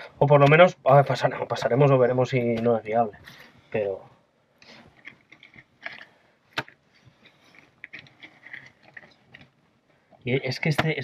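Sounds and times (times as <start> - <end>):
scraping stones and clay: 4.6 - 9.6.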